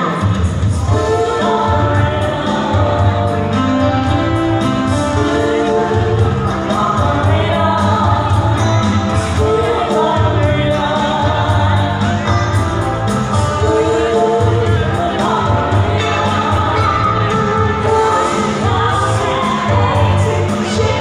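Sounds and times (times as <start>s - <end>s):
female vocals singing: 0.0s - 12.6s, 13.3s - 21.0s
heavy pulsing bass line: 0.4s - 21.0s.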